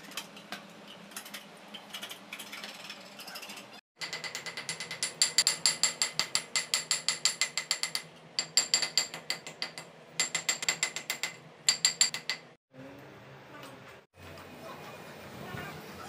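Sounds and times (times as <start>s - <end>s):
rapid ratchet-like clicking: 4.0s - 12.6s.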